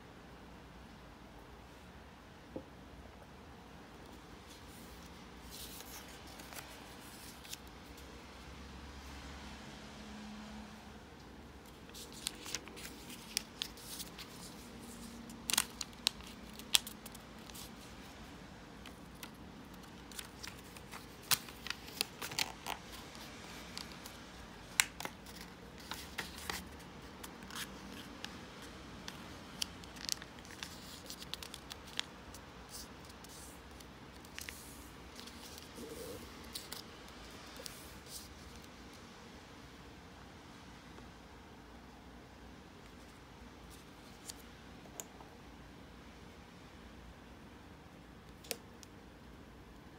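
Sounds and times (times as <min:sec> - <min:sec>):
paper being folded and creased: 0:04.5 - 0:07.8, 0:11.7 - 0:17.9, 0:18.8 - 0:38.7.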